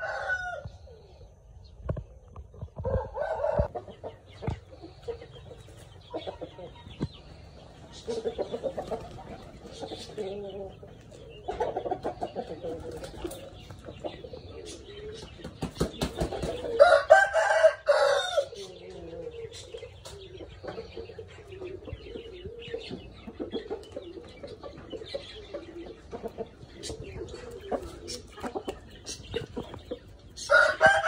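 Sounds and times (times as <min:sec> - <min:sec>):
rooster crowing: 0:00.0 - 0:00.7, 0:16.8 - 0:18.6, 0:30.5 - 0:31.0
chickens clucking: 0:00.0 - 0:31.0.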